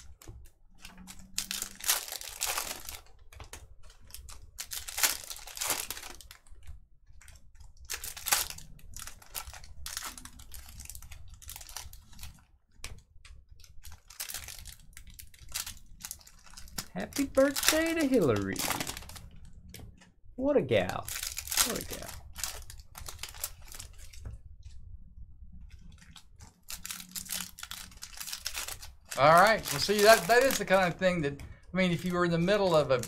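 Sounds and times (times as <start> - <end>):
wrappers crinkling: 0.0 - 19.7, 20.9 - 24.4, 25.7 - 31.4, 32.0 - 33.0
card packs being torn open: 0.8 - 6.4, 7.8 - 12.4, 13.7 - 19.3, 21.0 - 24.2, 25.9 - 31.3, 32.4 - 33.0.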